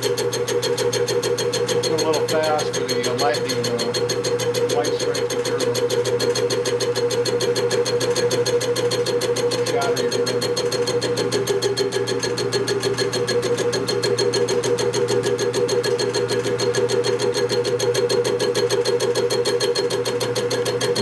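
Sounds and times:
machine tool humming: 0.0s - 21.0s
fast regular ticking: 1.7s - 6.2s.

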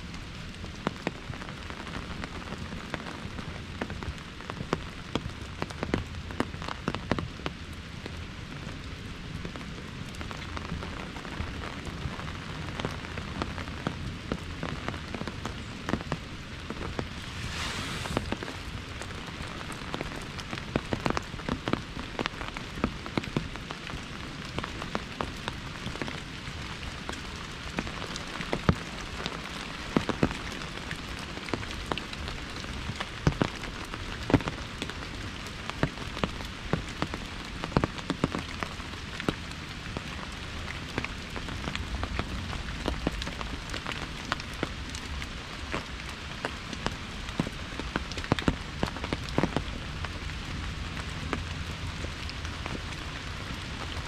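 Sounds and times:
raindrops tapping on umbrella: 0.0s - 54.0s
rain hissing: 14.7s - 21.5s
brief hiss: 17.0s - 18.9s.

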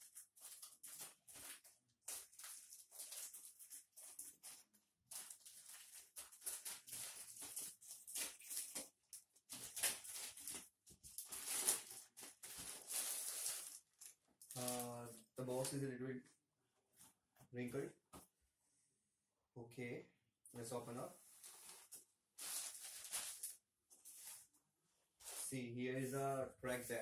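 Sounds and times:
plastic mailer tearing and crinkling: 0.0s - 15.0s, 21.4s - 24.4s.

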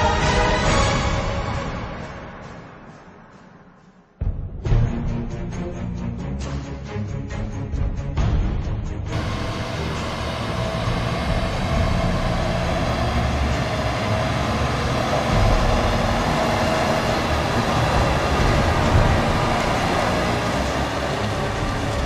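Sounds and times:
tractor diesel engine rumble: 9.1s - 22.0s.

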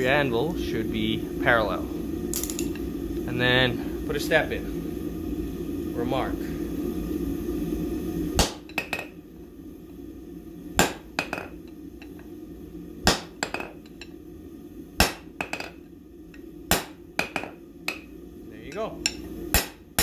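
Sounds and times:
hammer striking hot steel on anvil: 8.4s - 9.1s, 10.8s - 12.2s, 13.0s - 14.2s, 15.0s - 15.8s, 16.7s - 20.0s.

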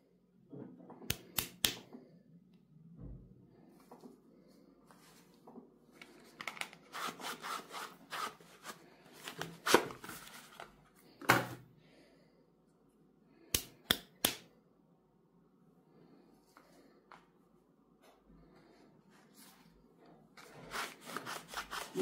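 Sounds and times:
cardboard rustling and scraping: 6.8s - 10.8s, 20.4s - 22.0s.

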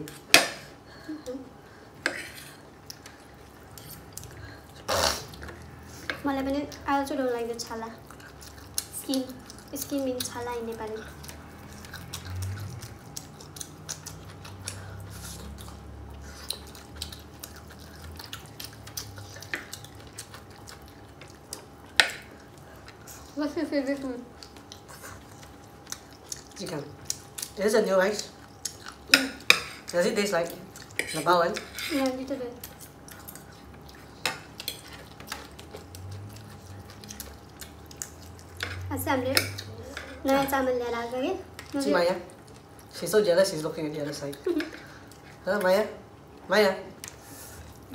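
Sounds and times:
wet chewing clicks: 7.8s - 40.5s.

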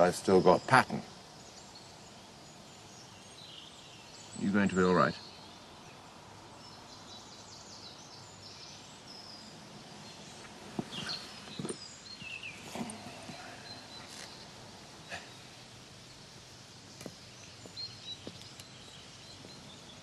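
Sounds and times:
birds chirping: 0.0s - 20.0s
steady background hiss: 0.0s - 20.0s
rustling: 9.9s - 15.4s.

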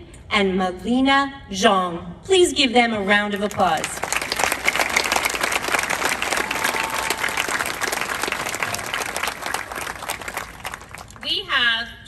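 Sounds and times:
audience applauding: 3.4s - 11.3s.

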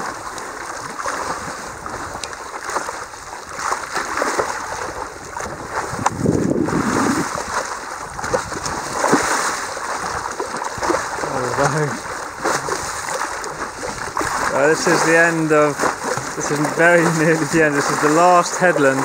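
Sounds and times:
small waves lapping against board: 0.0s - 19.0s.

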